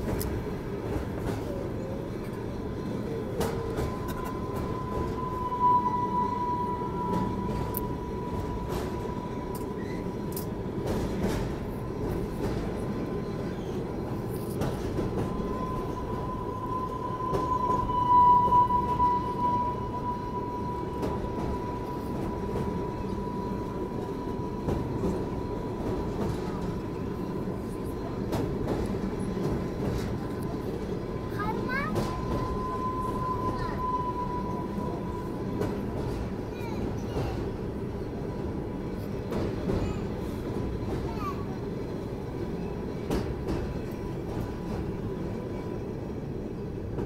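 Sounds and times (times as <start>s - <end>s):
train rumbling across bridge: 0.0s - 47.0s.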